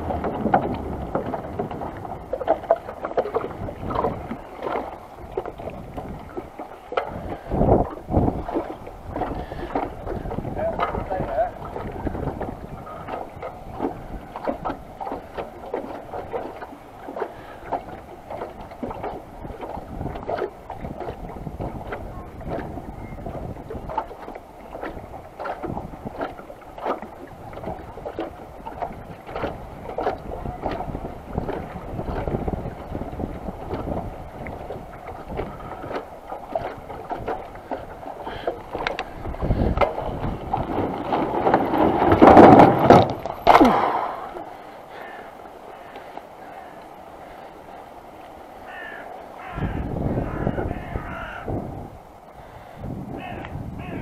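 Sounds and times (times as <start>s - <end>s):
wind on microphone: 0.0s - 45.2s, 48.7s - 54.0s.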